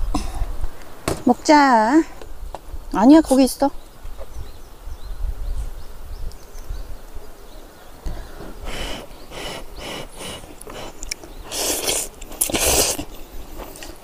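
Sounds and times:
soft breath puffs: 0:08.0 - 0:14.0
loud noodle slurps: 0:08.7 - 0:14.0.

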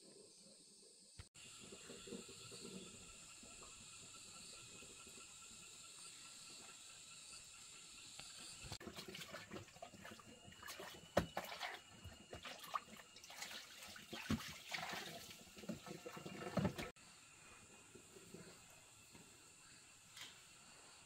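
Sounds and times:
water splashing and trickling: 0:08.6 - 0:17.0.

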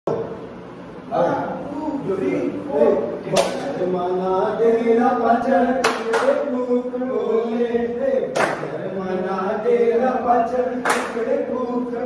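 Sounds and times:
men singing: 0:02.8 - 0:12.0
sharp hand claps: 0:03.3 - 0:03.7, 0:05.8 - 0:06.4, 0:08.3 - 0:08.7, 0:10.8 - 0:11.2.

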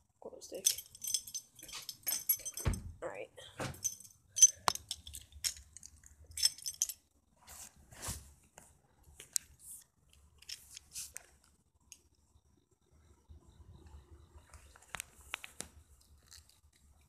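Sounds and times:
handling clicks and crunches: 0:00.5 - 0:02.7, 0:03.8 - 0:07.0, 0:09.2 - 0:12.0, 0:14.5 - 0:17.0
short metallic jingles: 0:00.5 - 0:03.0, 0:03.6 - 0:07.0.

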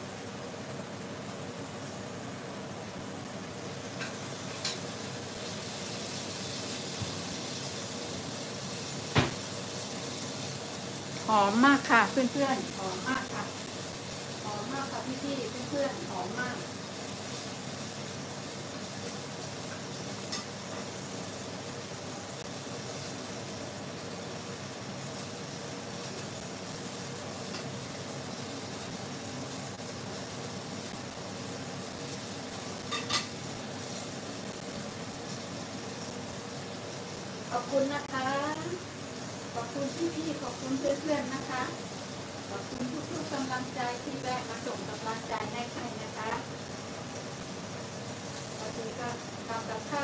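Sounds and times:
fish sizzling in frying pan: 0:00.0 - 0:50.0.

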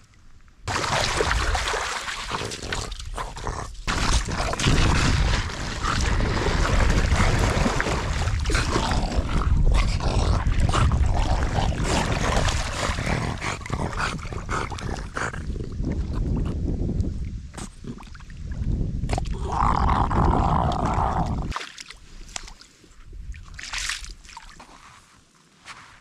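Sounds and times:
dog splashing through water: 0:00.7 - 0:09.4, 0:10.3 - 0:15.2.

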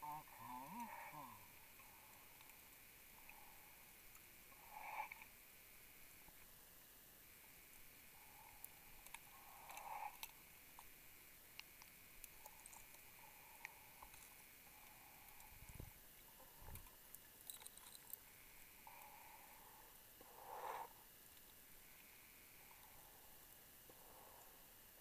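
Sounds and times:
muffled breathing on rebreather: 0:18.2 - 0:25.0.

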